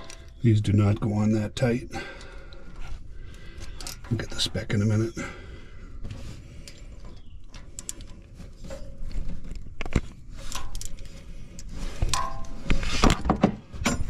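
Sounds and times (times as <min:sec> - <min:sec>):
hand tool clicks and metal knocks: 0:00.0 - 0:01.1.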